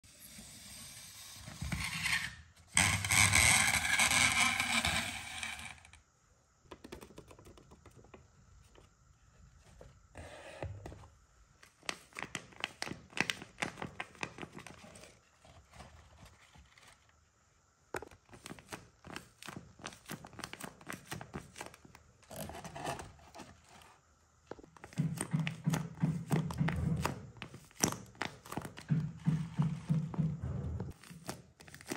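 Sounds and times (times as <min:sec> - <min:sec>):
paper taps and clicks: 0:06.7 - 0:08.2, 0:24.5 - 0:30.2
paper scraping and rustling: 0:11.7 - 0:17.1
paper crinkling: 0:31.0 - 0:31.9.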